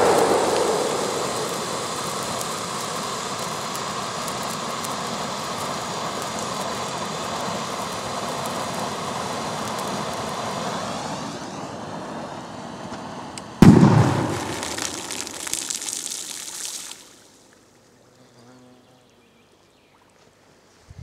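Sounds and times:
firecracker bang: 0.0 - 3.5, 13.6 - 16.4
ground firework hissing: 0.0 - 17.3.

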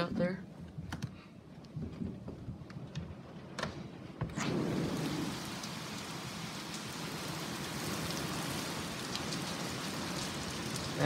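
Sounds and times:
heavy rain pouring: 1.4 - 11.0.

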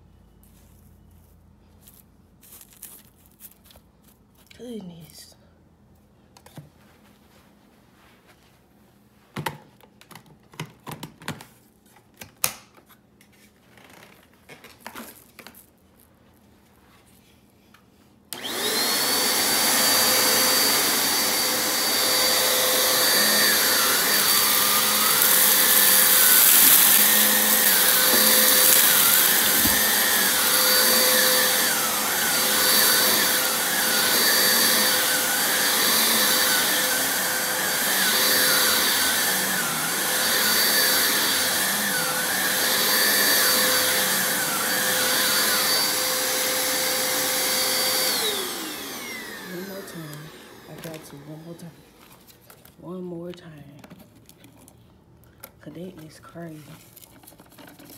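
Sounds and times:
vacuum cleaner motor whine: 18.3 - 52.2.

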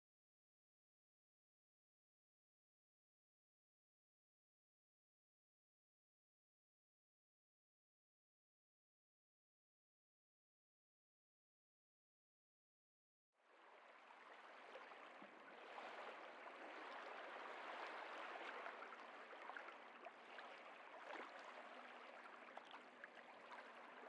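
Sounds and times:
faint running water: 13.5 - 24.0.

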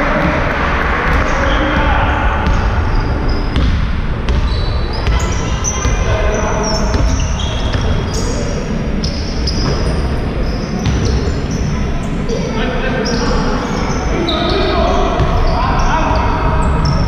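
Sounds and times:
basketball bouncing on court: 1.0 - 8.4, 10.8 - 11.4
sneakers squeaking: 1.1 - 17.0.

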